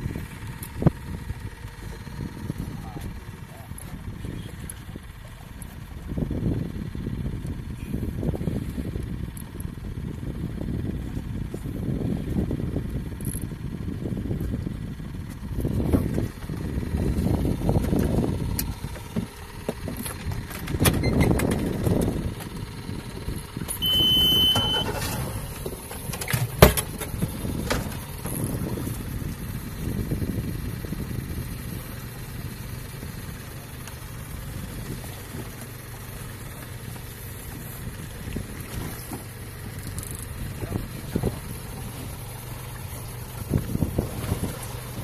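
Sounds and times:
boat engine idling: 0.0s - 45.0s
wind and water noise: 0.0s - 45.0s
high beep: 23.8s - 24.9s.

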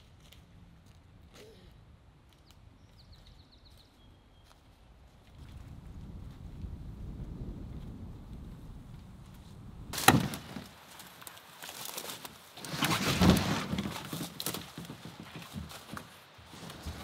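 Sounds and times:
twigs cracking: 10.0s - 16.3s
canoe scraping over branches: 10.0s - 17.0s.

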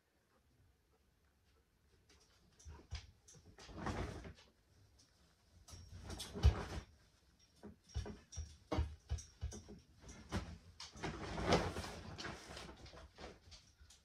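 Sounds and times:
metal rack knocks and clicks: 7.8s - 11.6s.

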